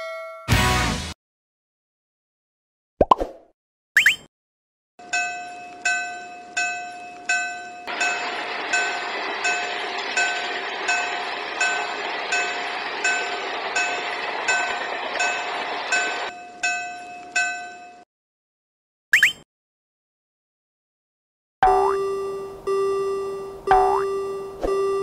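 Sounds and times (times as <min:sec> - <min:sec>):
level-crossing bell ringing: 0:05.0 - 0:18.0
train passing with rushing noise: 0:07.8 - 0:16.4.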